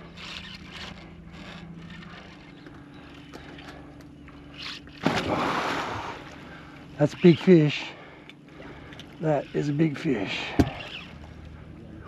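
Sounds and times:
steady low hum: 0.0s - 12.0s
fish thrashing splash: 5.0s - 6.3s.

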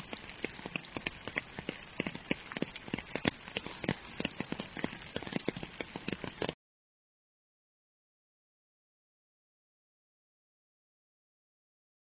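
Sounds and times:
raindrops landing: 0.0s - 6.6s
steady rain hiss: 0.0s - 6.6s.

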